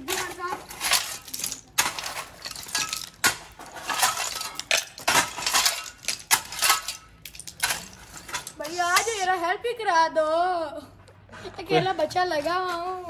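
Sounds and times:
fragments clinking: 0.0s - 9.2s
shovel scraping rubble: 0.0s - 9.4s.

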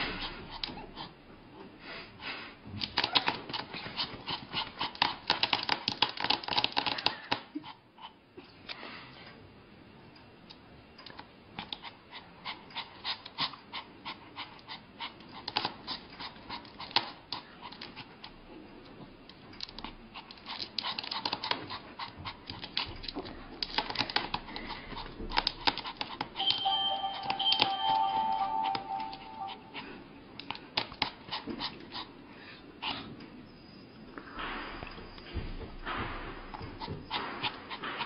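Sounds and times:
music: 26.4s - 29.7s.

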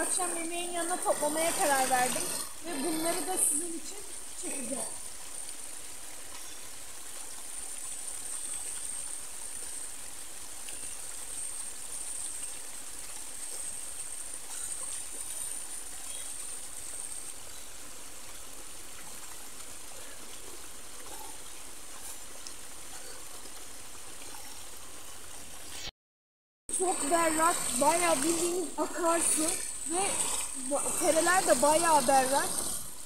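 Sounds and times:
stream flowing over stones: 0.0s - 25.9s, 26.7s - 33.0s.

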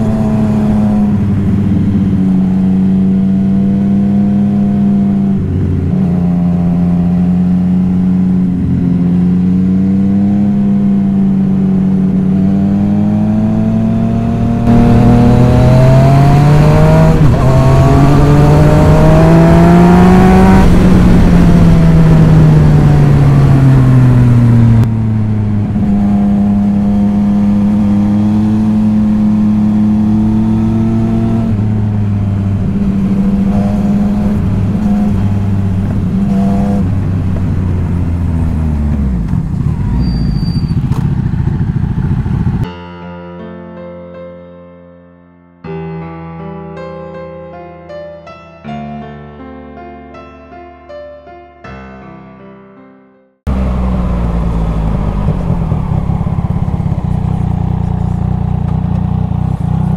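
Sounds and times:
motorcycle engine revving: 0.0s - 42.7s, 53.5s - 59.9s
soft piano music: 42.6s - 53.3s.

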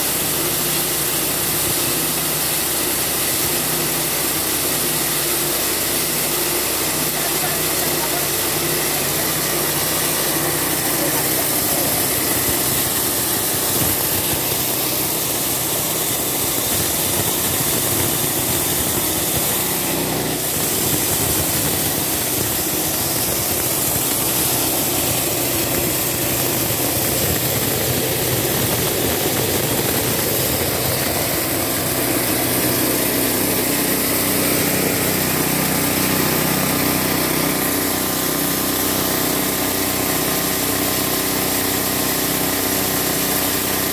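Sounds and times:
engine-driven chopper running: 0.2s - 43.9s.

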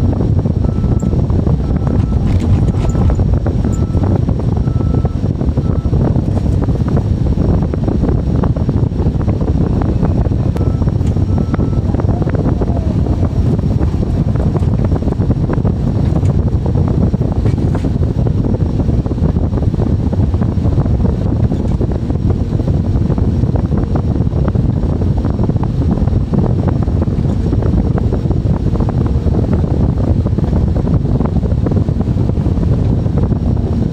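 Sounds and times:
excavator rumbling under load: 0.3s - 7.0s, 10.4s - 18.0s.

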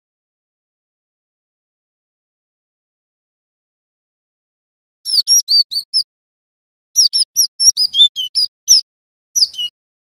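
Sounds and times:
bird singing high whistled notes: 5.1s - 6.1s, 7.0s - 9.8s.

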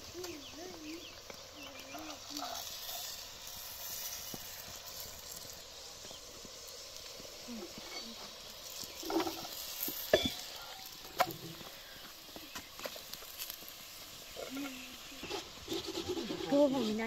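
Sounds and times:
flatbread sizzling in hot oil: 0.0s - 17.0s
metal spoon scraping pot: 14.6s - 17.0s.

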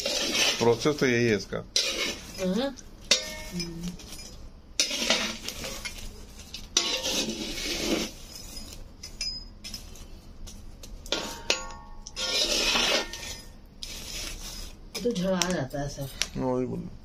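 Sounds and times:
scraping and rustling among coals: 0.0s - 15.8s
metal clinking in a pan: 1.8s - 10.0s, 10.8s - 13.6s.

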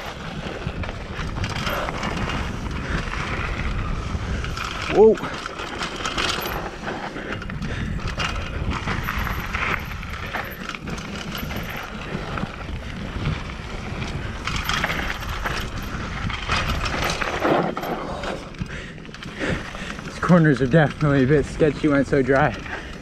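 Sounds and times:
bike rattling over bumps: 0.0s - 23.0s
bike tyres on loose dirt: 0.0s - 23.0s.

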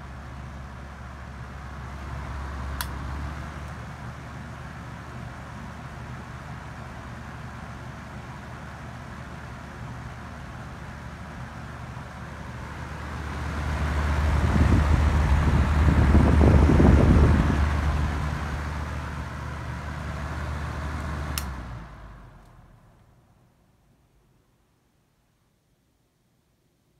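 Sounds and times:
exhaust fan running: 0.0s - 24.3s
fan switch click: 2.8s - 3.0s, 21.0s - 21.7s.

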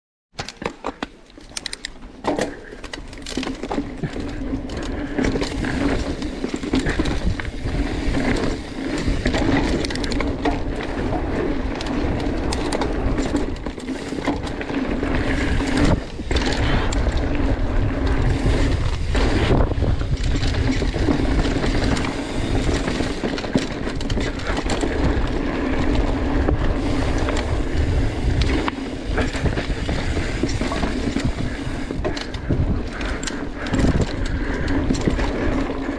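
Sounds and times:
bike rattling over bumps: 0.4s - 35.9s
tyres rolling over dirt: 0.9s - 35.9s
wind on microphone: 14.8s - 35.9s.

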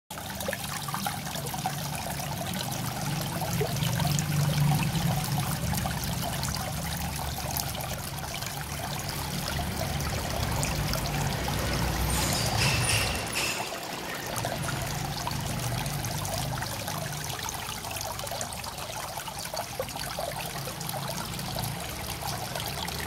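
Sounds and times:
water trickling and splashing: 0.1s - 23.0s.

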